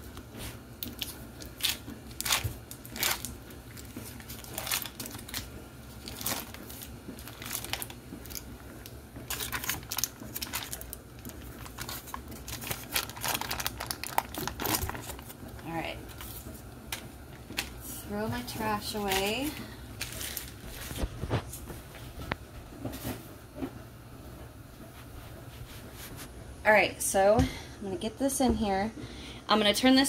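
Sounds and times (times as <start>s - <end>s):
foil wrapper crinkling: 0.8s - 21.8s.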